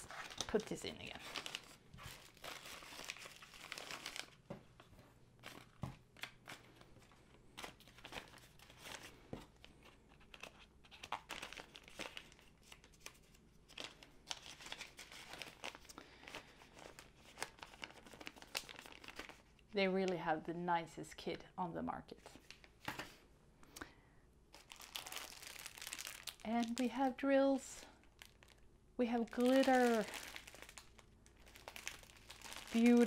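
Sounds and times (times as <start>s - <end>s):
plastic pouch crinkling: 0.0s - 4.5s, 5.4s - 19.6s, 24.5s - 33.0s.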